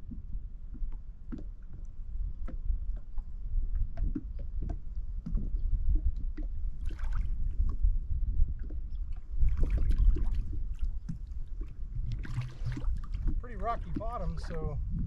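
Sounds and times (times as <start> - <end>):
low wind rumble on microphone: 0.0 - 15.0
waves lapping against hull: 0.0 - 15.0
hissy washes of water: 9.4 - 14.8.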